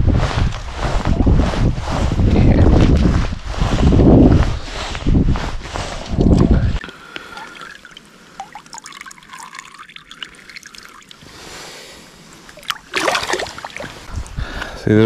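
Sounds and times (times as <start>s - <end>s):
wind rumbling on microphone: 0.0s - 6.8s, 13.9s - 14.8s
small water splashes: 6.8s - 11.5s, 12.4s - 14.1s
water trickling and dripping: 6.8s - 11.5s, 12.3s - 14.1s.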